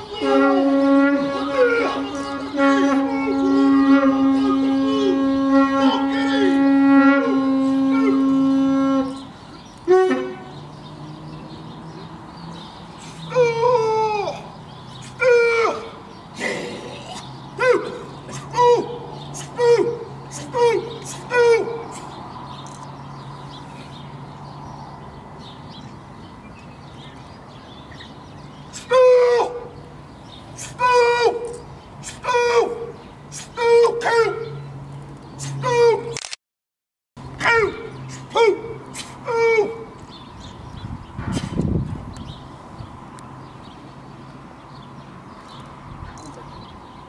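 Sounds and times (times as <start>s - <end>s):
horn blown in long note: 0.0s - 10.6s
short falling cries: 13.3s - 14.5s.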